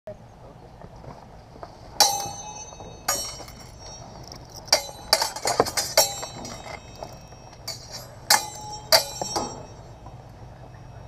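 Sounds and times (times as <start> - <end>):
steel swords clashing: 2.0 - 10.1.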